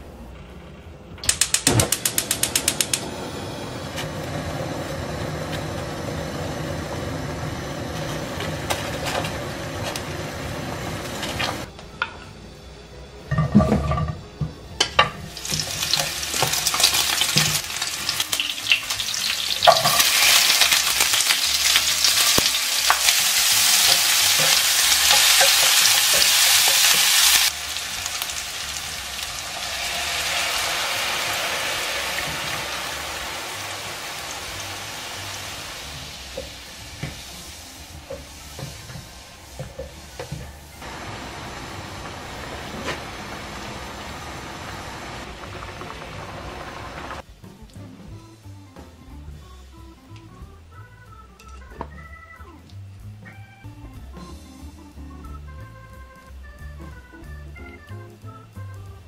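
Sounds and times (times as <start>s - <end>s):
bacon sizzling in a frying pan: 15.0s - 47.2s.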